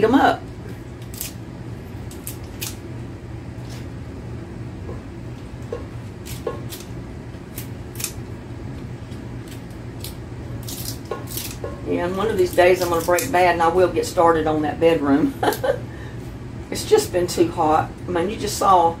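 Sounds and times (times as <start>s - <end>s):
scissors snipping greens: 1.0s - 1.4s, 2.1s - 2.8s, 6.2s - 6.9s, 7.5s - 8.2s, 9.4s - 13.4s.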